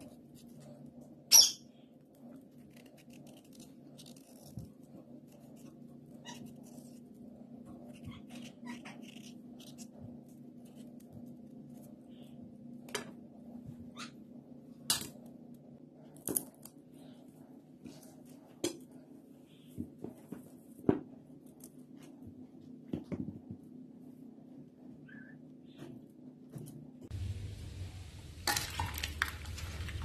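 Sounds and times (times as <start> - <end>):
steady low hum: 0.0 - 30.0.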